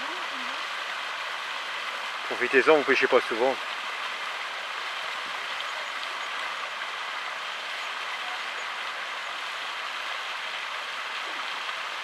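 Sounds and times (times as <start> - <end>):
water rushing: 0.0 - 12.0.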